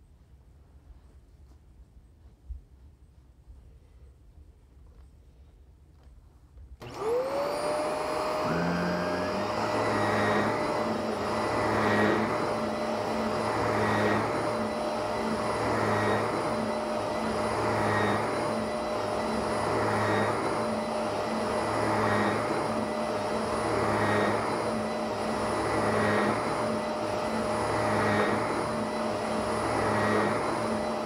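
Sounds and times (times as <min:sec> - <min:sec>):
vacuum cleaner running on carpet: 0:06.8 - 0:31.0.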